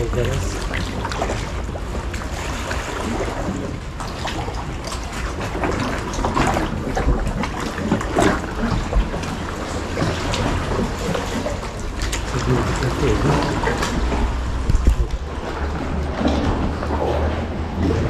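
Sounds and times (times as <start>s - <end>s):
paddle strokes splashing: 0.0s - 18.0s
water lapping around kayak: 0.0s - 18.0s
wind noise on microphone: 13.2s - 18.0s.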